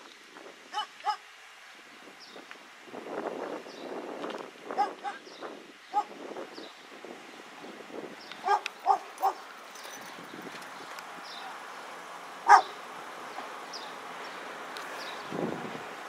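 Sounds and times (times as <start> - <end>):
dog barking: 0.8 - 1.2, 4.8 - 5.2, 5.9 - 6.1, 8.4 - 9.4, 12.4 - 12.8.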